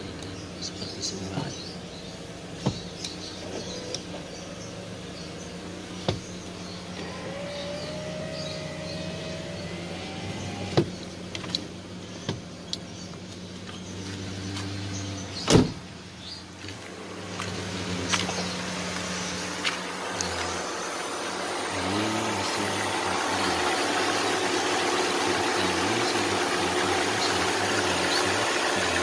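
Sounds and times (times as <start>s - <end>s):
engine idling hum: 0.0s - 29.0s
power window motor whining: 2.4s - 12.6s, 16.7s - 29.0s
loud thump: 15.5s - 15.8s.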